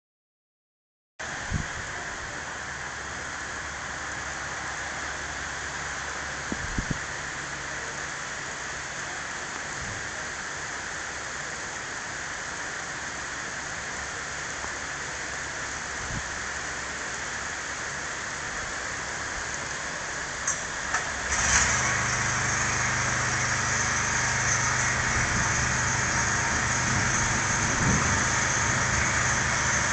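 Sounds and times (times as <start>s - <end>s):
rain hissing: 1.2s - 29.9s
deep thunder rumble: 24.9s - 29.9s.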